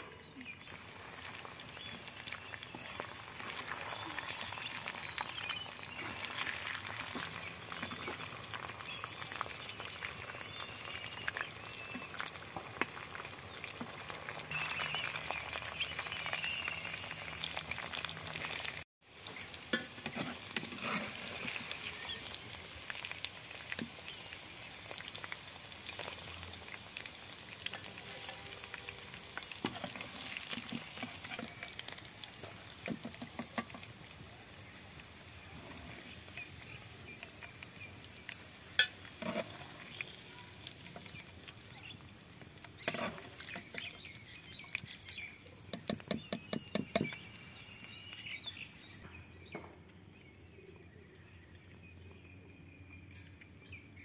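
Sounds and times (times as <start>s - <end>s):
chicken deep-frying in oil: 0.0s - 54.0s
metal spoon stirring: 38.8s - 40.0s, 42.8s - 43.9s.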